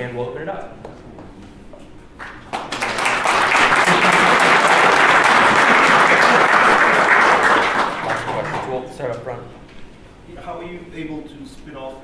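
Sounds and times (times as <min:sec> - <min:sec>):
audience applauding: 0:02.2 - 0:08.9.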